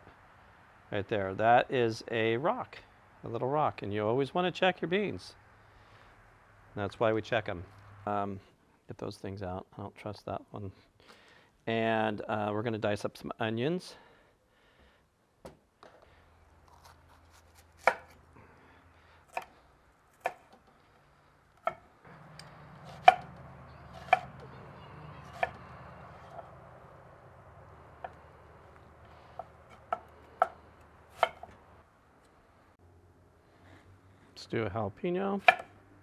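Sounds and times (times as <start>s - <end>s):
faint low hum: 0.0s - 12.4s
knife chopping on wooden board: 17.8s - 18.2s, 22.8s - 24.4s, 29.4s - 31.5s, 35.4s - 35.7s.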